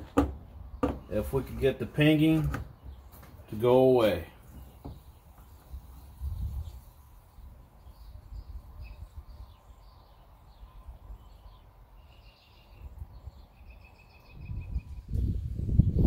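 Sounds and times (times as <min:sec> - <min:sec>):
bird chirps and trills: 0:04.5 - 0:16.0.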